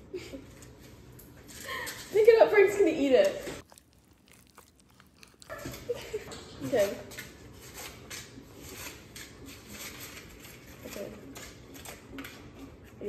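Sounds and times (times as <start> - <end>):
paper liners crinkling: 3.6 - 6.2.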